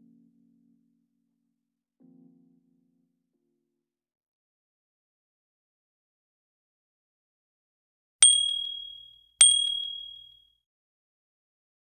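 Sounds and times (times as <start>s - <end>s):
bell ding ringing: 8.2s - 10.3s.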